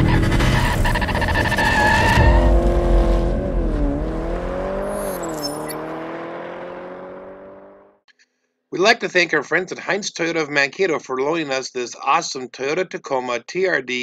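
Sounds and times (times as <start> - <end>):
engine note rising and dipping: 0.0 - 8.0.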